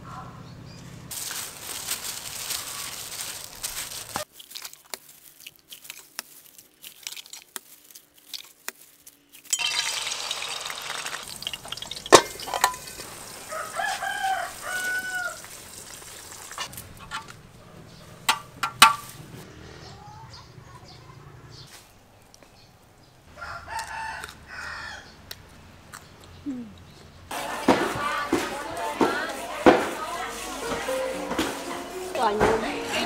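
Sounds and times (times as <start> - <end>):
oil hissing in frying pan: 9.6 - 16.7
metal utensil clinks: 11.7 - 12.9
rooster crowing: 13.1 - 15.8, 23.3 - 25.2.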